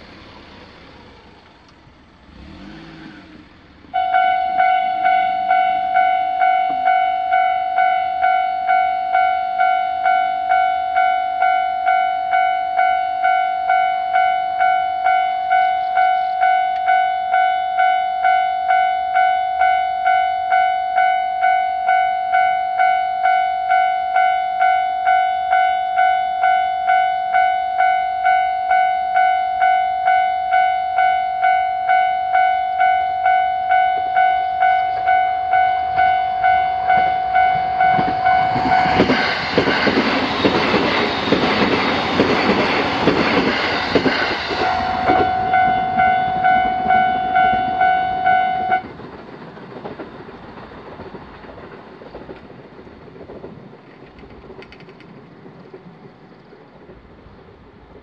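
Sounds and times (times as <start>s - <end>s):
electric train passing: 0.0s - 58.0s
level crossing bell ringing: 4.0s - 39.1s, 44.6s - 48.8s.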